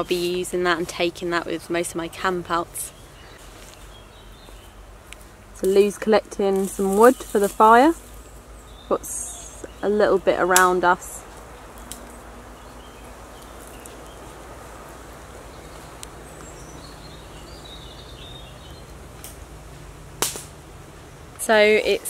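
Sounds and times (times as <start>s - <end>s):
soft background hiss: 0.0s - 22.0s
faint bird chirps: 8.2s - 9.9s.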